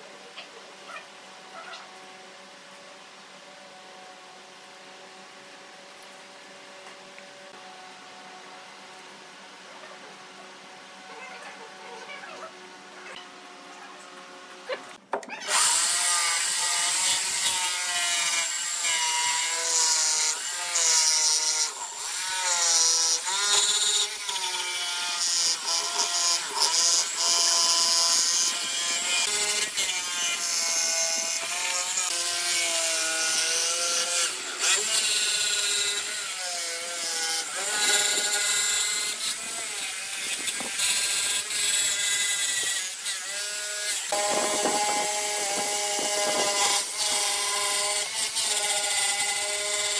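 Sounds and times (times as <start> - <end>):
jigsaw cutting wood: 15.4 - 49.9.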